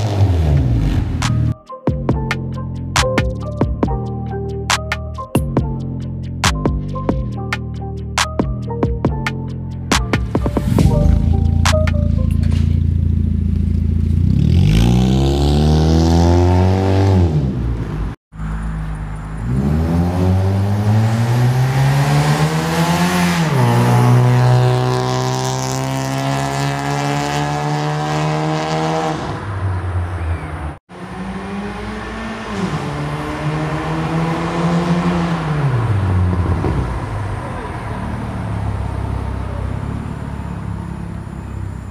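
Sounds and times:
car engine revving past: 13.2 - 41.4.

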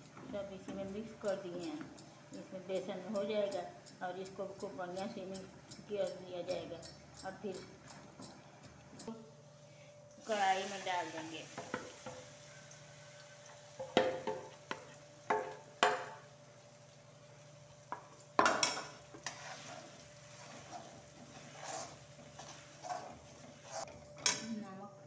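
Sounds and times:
batter sizzling in hot oil: 10.2 - 23.9
spoon knocking against pan: 13.8 - 16.2, 17.9 - 19.0
metal spoon scraping a pan: 18.5 - 24.4.

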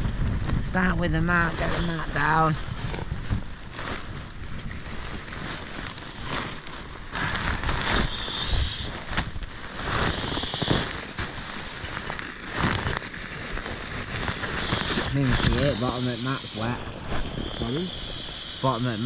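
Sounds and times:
fabric crinkling and rustling: 1.4 - 8.1, 8.9 - 15.7
short hissy stretches: 7.2 - 11.4, 14.4 - 18.6.

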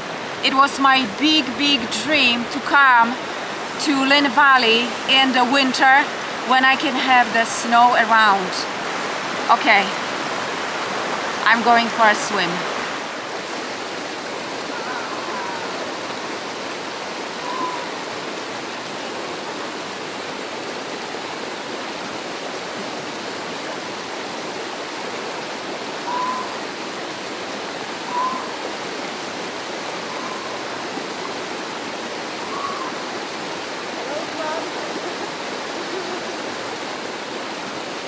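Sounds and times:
faint high-pitched sounds: 17.3 - 18.0.

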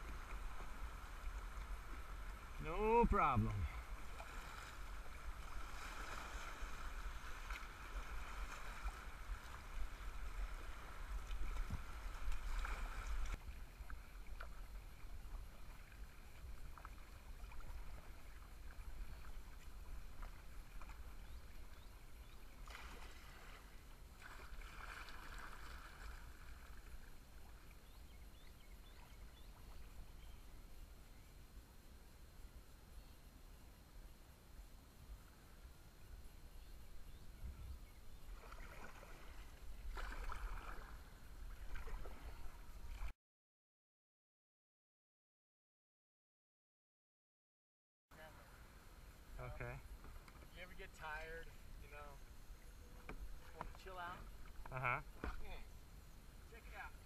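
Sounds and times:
paddle strokes: 0.0 - 27.8, 38.2 - 43.1, 52.7 - 55.8
water splashing: 0.0 - 27.8, 38.3 - 43.1
rushing river water: 0.0 - 30.7, 38.2 - 43.1.

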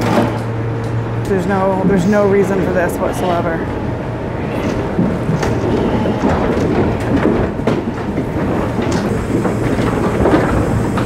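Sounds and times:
trailer rumbling: 0.0 - 11.0
metallic knocks and clatter: 4.9 - 11.0.

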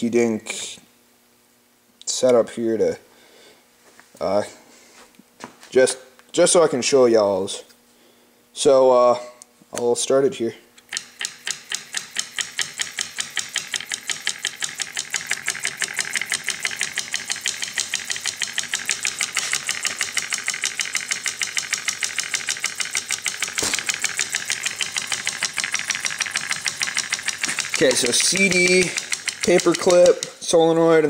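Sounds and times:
solenoid engine clattering: 10.8 - 30.9.

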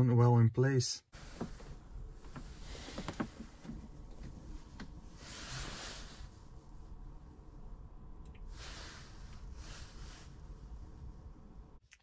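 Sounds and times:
soft rustle: 1.2 - 6.9, 8.5 - 11.3.

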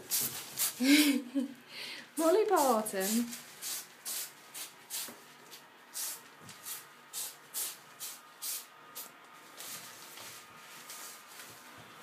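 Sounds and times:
shower curtain rustling: 9.4 - 12.0.

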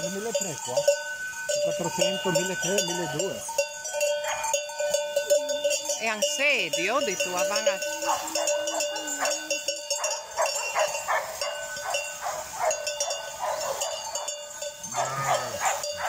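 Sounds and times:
sheep bells clanking: 0.0 - 16.0
sheep bleating: 14.9 - 16.0.

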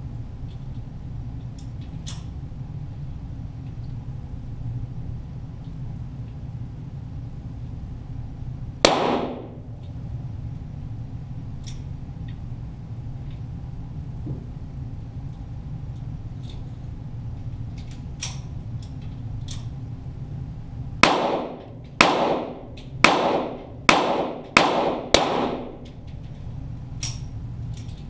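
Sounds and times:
steady low hum: 0.0 - 28.0
pistol shot: 8.9 - 9.6, 21.0 - 25.8.

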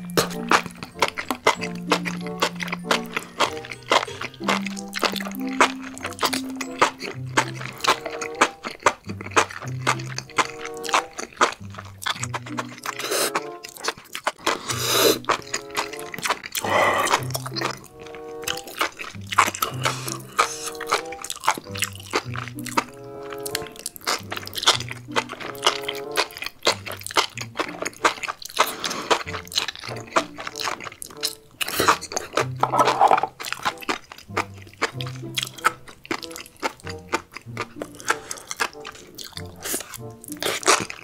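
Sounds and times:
crisp chewing clicks: 0.0 - 41.0
background music with bass: 19.2 - 20.6.

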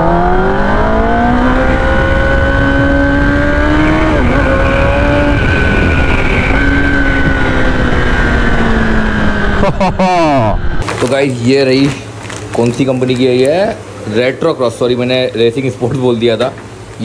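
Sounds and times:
motorcycle engine accelerating: 0.0 - 10.8
wind rush: 1.1 - 9.6.

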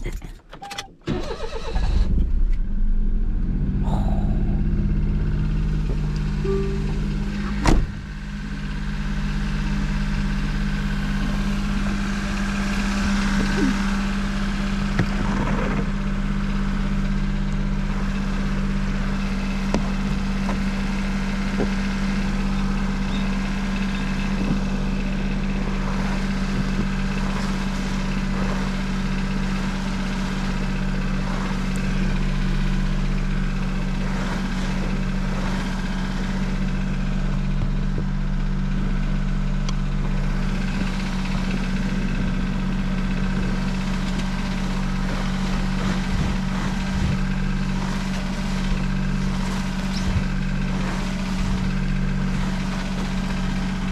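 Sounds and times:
car engine idling: 0.0 - 53.9.

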